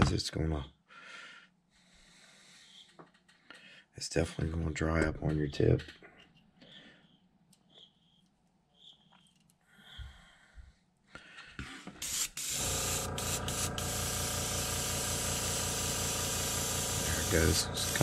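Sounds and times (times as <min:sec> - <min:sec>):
airbrush hissing air: 0:12.0 - 0:18.0
steady hum: 0:12.4 - 0:18.0.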